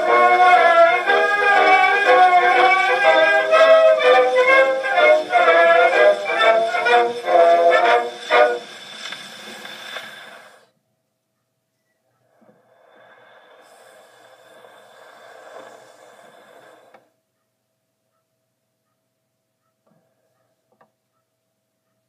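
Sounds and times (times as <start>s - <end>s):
faint steady whirring: 0.0s - 17.4s.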